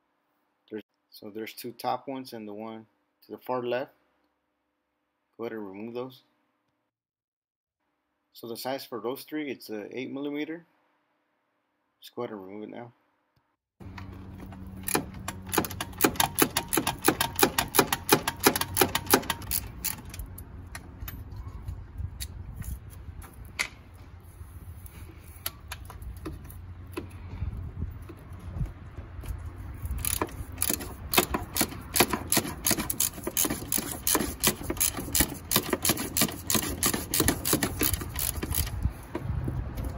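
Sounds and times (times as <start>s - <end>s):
hand ratchet clicking: 14.8s - 20.3s, 29.8s - 38.8s.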